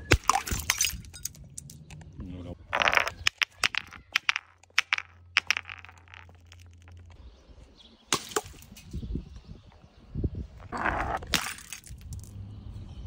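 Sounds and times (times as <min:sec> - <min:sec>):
glass bottle knocking on stone steps: 0:02.8 - 0:07.1.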